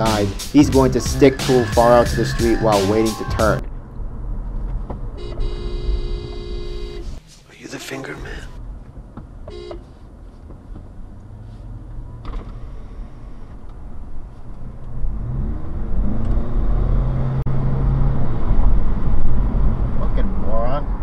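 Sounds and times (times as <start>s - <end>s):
road rumble: 0.0s - 21.0s
car engine accelerating: 10.5s - 21.0s.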